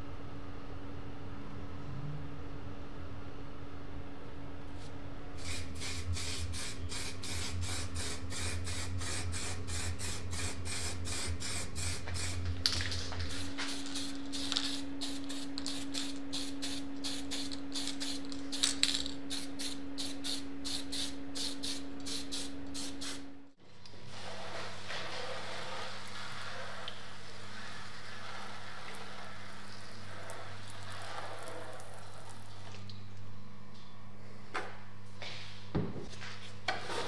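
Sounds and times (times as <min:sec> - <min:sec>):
steady low hum: 0:00.0 - 0:36.5
spray paint hissing in spurts: 0:05.4 - 0:12.4, 0:13.2 - 0:23.2.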